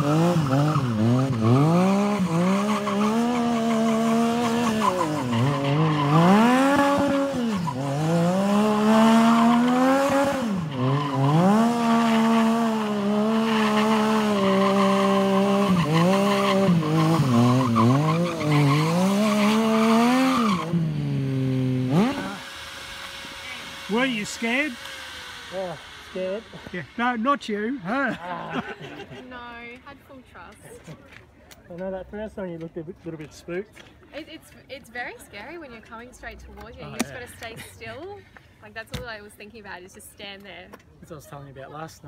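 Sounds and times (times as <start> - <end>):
motorcycle engine revving: 0.0 - 30.4.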